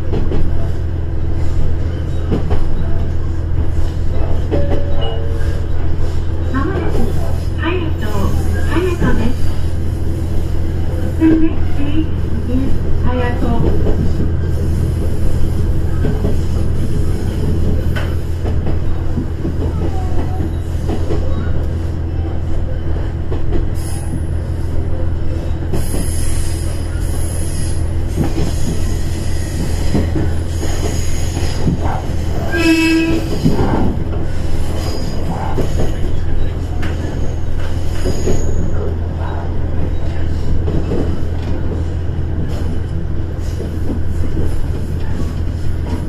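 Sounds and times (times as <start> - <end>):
train horn blast: 32.5 - 33.3.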